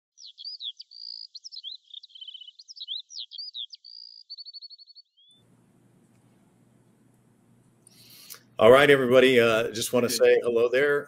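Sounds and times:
bird singing whistled notes: 0.2s - 5.4s
faint low hum: 5.4s - 11.0s.

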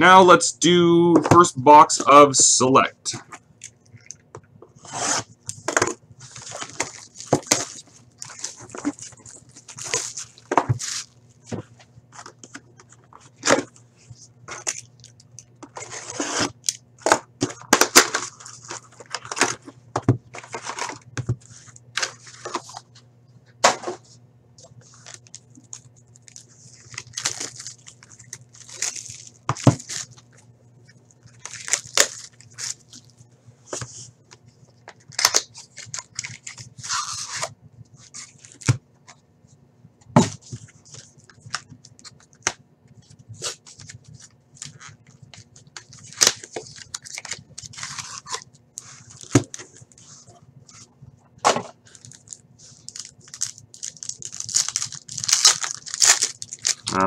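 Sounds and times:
steady low hum: 0.0s - 57.0s
plastic wrap crinkling and tearing: 6.2s - 11.5s, 24.8s - 30.4s, 31.2s - 33.2s, 35.0s - 38.7s, 40.8s - 50.2s, 51.8s - 57.0s.

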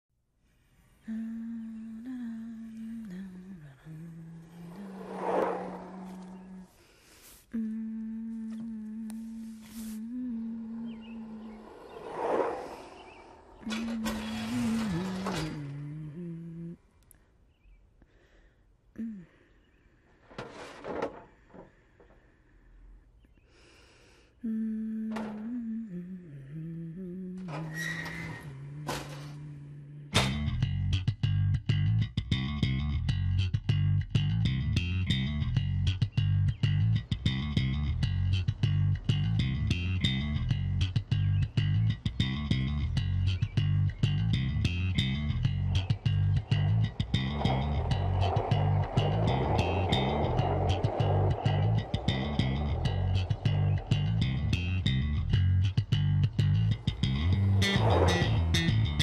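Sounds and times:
person humming: 1.0s - 4.9s, 7.5s - 11.6s, 13.6s - 16.9s, 18.9s - 19.5s, 24.4s - 27.5s
brief rush of noise: 4.6s - 6.6s, 10.6s - 13.8s.

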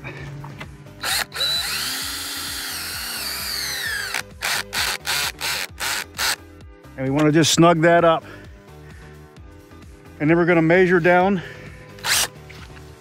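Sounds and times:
cordless drill whining: 1.0s - 6.4s, 12.0s - 12.3s.

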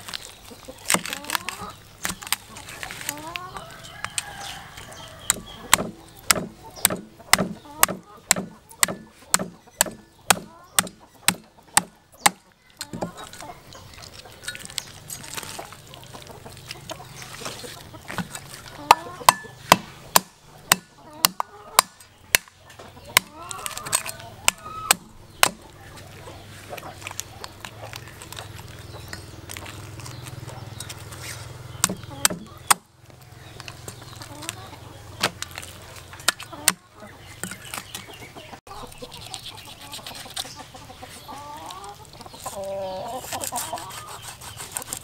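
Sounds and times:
cleaver chopping fish on wood: 5.2s - 13.2s, 18.9s - 25.7s, 31.8s - 32.9s.

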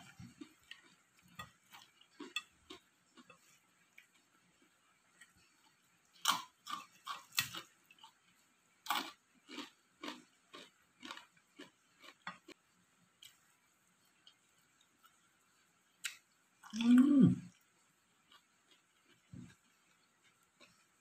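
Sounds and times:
mouth chewing with wet crunches: 0.0s - 8.3s, 8.9s - 12.6s, 17.5s - 21.0s.

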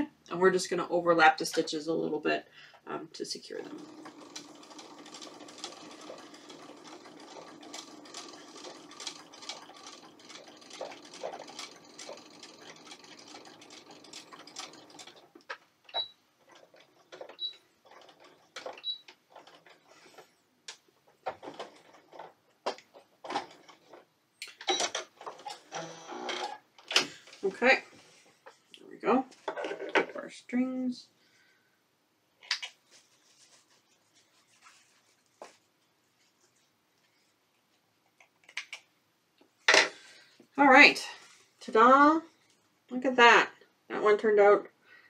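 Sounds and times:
sewing machine stitching: 3.5s - 20.3s, 21.2s - 24.0s.

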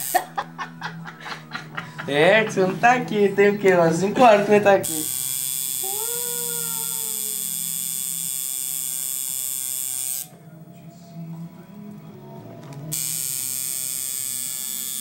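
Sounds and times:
tattoo machine buzzing: 0.0s - 0.3s, 4.8s - 10.3s, 12.9s - 15.0s.

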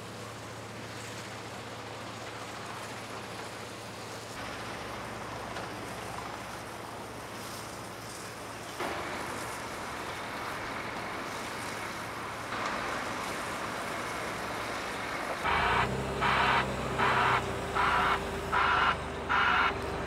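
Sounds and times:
site machinery noise: 0.0s - 20.0s
wheel loader diesel engine: 0.0s - 20.0s
rasping reversing alarm beeps: 15.5s - 20.0s.

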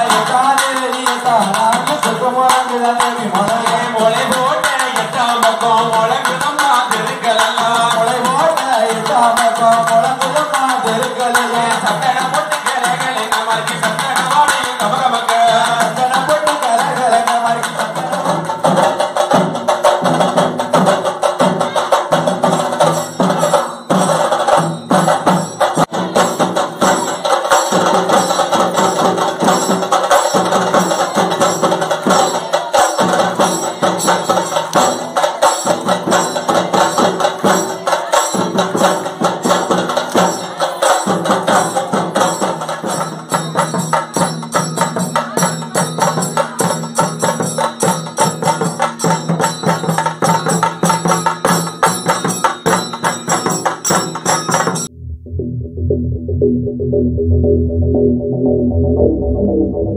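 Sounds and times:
jingling percussion: 0.0s - 54.9s
hand drums beating: 0.0s - 55.0s
wavering melody: 54.8s - 59.9s.

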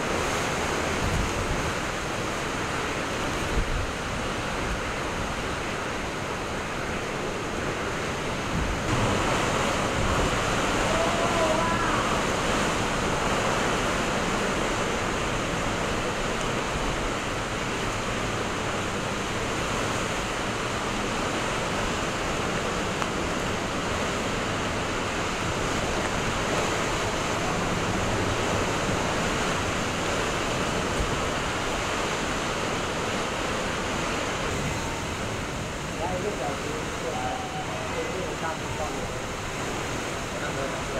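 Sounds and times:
loud rushing wind: 0.0s - 40.5s
driving rain: 0.0s - 40.9s.

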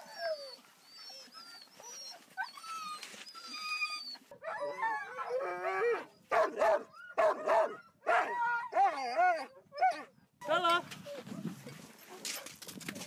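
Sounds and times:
dogs whining: 0.0s - 6.1s
dogs howling and yelping: 0.0s - 10.2s.

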